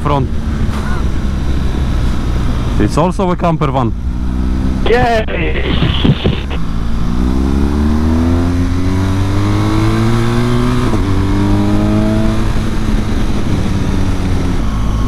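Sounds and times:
motorcycle engine accelerating: 0:06.6 - 0:15.0.

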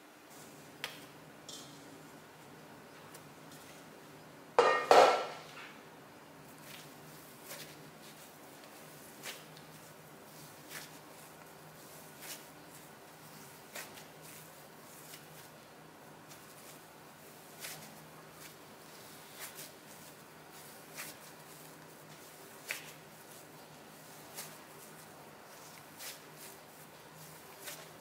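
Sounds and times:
hands kneading dough: 0:06.3 - 0:28.0.

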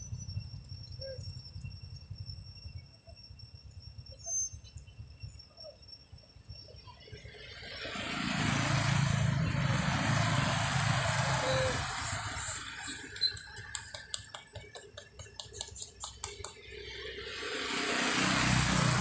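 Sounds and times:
vehicle passing by: 0:07.2 - 0:14.2, 0:16.7 - 0:19.0.

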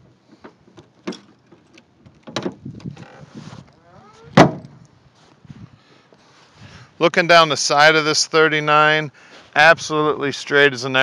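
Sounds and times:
car trunk lid banging shut: 0:04.2 - 0:04.8.

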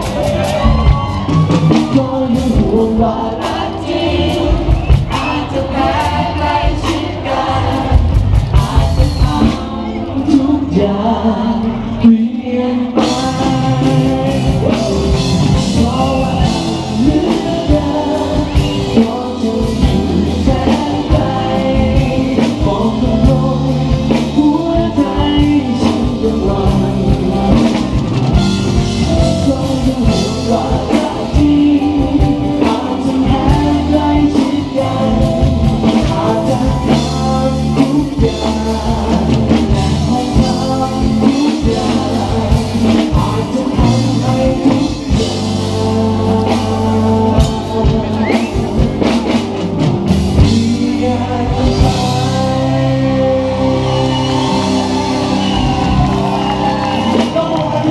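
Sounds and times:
live band playing: 0:00.0 - 0:57.9
man singing into microphone: 0:00.0 - 0:57.9.

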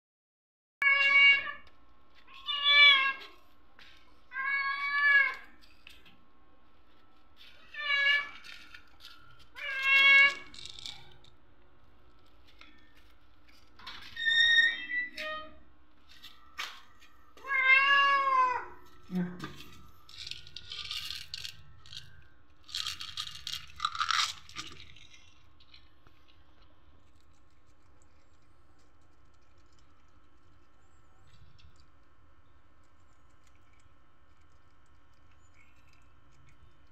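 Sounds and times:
cat meowing loudly: 0:00.8 - 0:01.6, 0:17.4 - 0:18.8
dry cat food rattling: 0:07.8 - 0:11.4, 0:20.1 - 0:36.9
cat crunching kibble: 0:08.2 - 0:13.8, 0:20.1 - 0:36.9.

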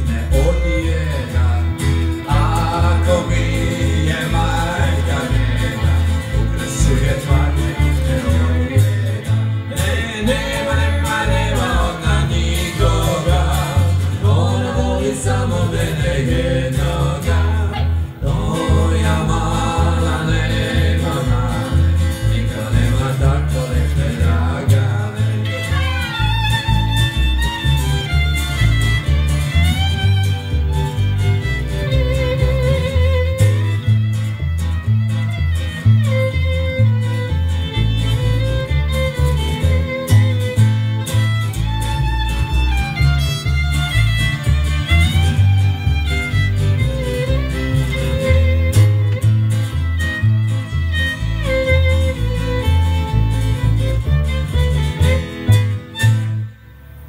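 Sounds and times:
person singing: 0:00.0 - 0:26.2
fiddle melody: 0:00.0 - 0:57.0
guitar: 0:00.0 - 0:57.0.

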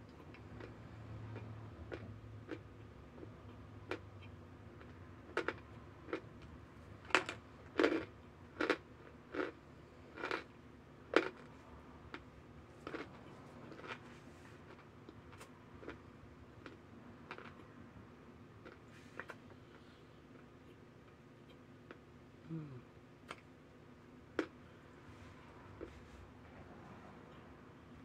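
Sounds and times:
crunchy bites and chewing: 0:04.7 - 0:11.5, 0:12.1 - 0:17.7.

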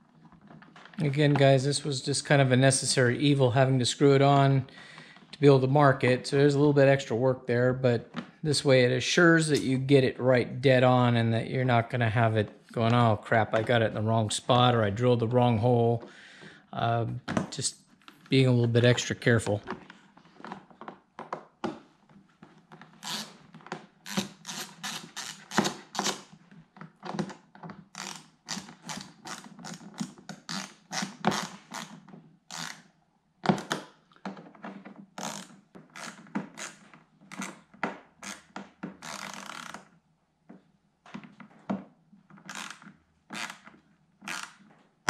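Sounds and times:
hand ratchet clicking: 0:23.0 - 0:23.4, 0:24.1 - 0:26.2, 0:28.0 - 0:31.9, 0:32.5 - 0:32.8, 0:35.2 - 0:37.6, 0:38.2 - 0:39.9, 0:42.5 - 0:43.7, 0:44.3 - 0:44.6.

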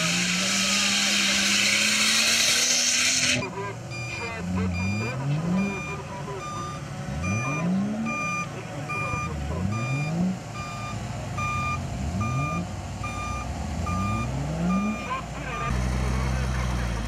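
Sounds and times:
vehicle engine revving: 0:00.0 - 0:17.0
reversing alarm beeping: 0:03.2 - 0:15.8.

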